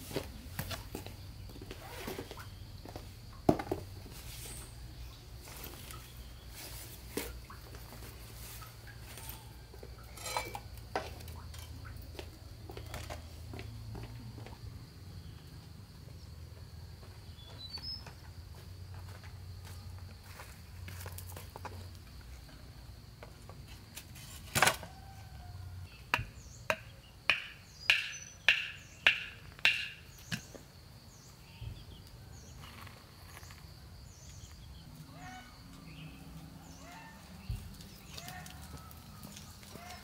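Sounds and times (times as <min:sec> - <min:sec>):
insects whining: 0:01.0 - 0:03.4, 0:12.8 - 0:40.0.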